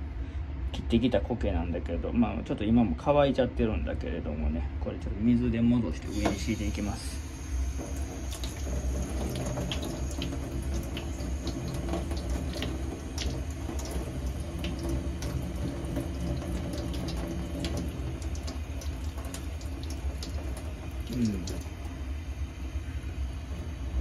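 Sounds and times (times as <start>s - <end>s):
tap running into steel sink: 6.1s - 6.6s
small drips and splashes: 6.1s - 24.0s.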